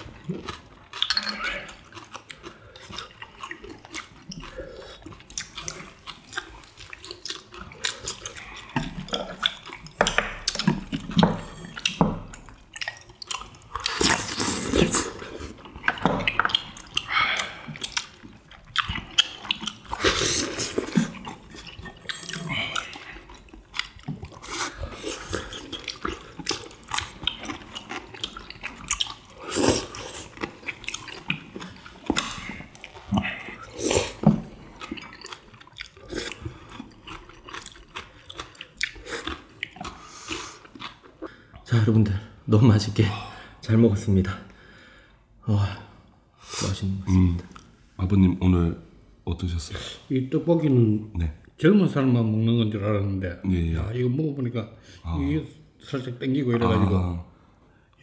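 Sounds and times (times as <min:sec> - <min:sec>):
slurping: 0:00.0 - 0:41.5
chewing and mouth noises: 0:00.0 - 0:41.8.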